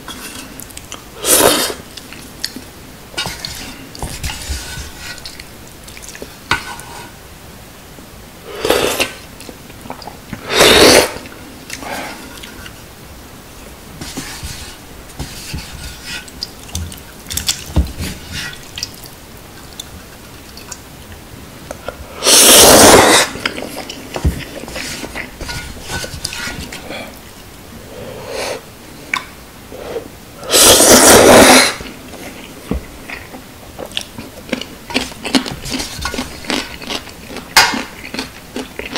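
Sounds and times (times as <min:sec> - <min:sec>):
quiet chewing: 0:16.2 - 0:22.0, 0:31.8 - 0:38.9
noodles slurped loudly: 0:22.2 - 0:24.0, 0:30.5 - 0:31.9.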